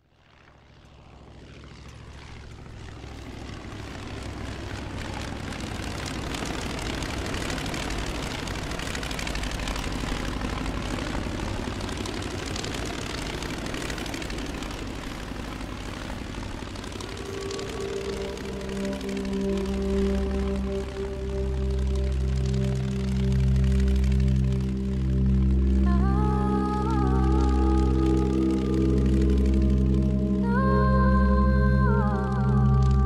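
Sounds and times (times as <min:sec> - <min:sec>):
propeller aircraft engine droning: 0:00.0 - 0:33.0
music: 0:17.0 - 0:33.0.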